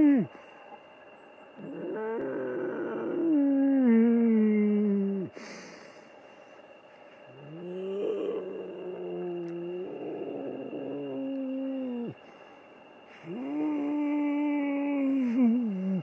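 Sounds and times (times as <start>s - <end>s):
man humming moans: 0.0s - 0.3s, 1.6s - 5.4s, 7.4s - 12.2s, 13.2s - 16.0s.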